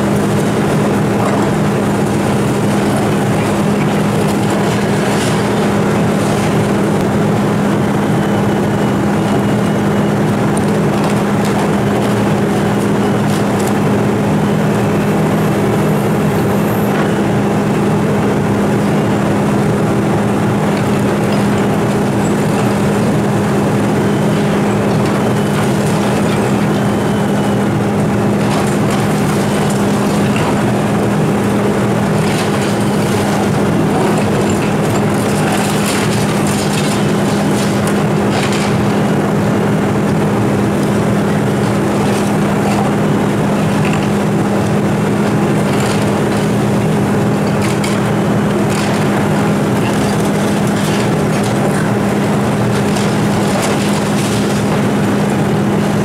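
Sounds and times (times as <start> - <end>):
demolition jaws crunching concrete: 0.0 - 8.3, 19.5 - 56.0
excavator diesel engine droning: 0.0 - 56.0
falling rubble clatter: 0.0 - 56.0.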